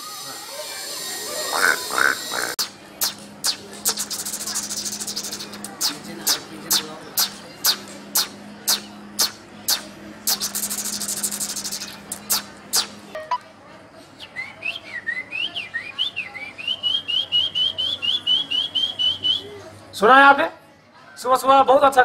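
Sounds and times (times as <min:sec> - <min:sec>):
man imitating bird song: 0:01.5 - 0:12.9
buzzy rattle: 0:01.6 - 0:13.0
tongue clicks: 0:01.6 - 0:13.0.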